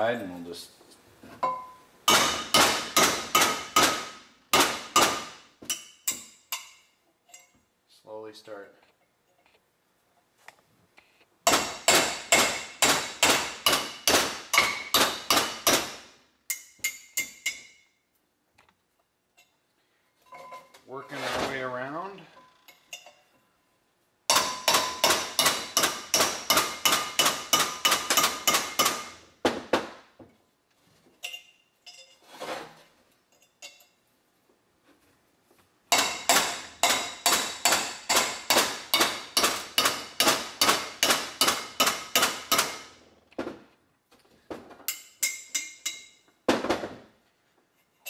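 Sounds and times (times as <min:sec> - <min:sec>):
hammer striking steel chisel: 0:01.5 - 0:06.8, 0:11.5 - 0:17.9, 0:24.3 - 0:29.2, 0:35.9 - 0:42.9.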